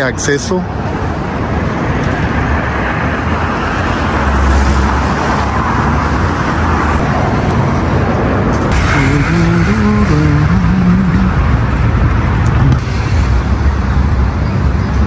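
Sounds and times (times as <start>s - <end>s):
city road traffic: 0.0s - 15.0s
deep low rumble: 6.9s - 15.0s.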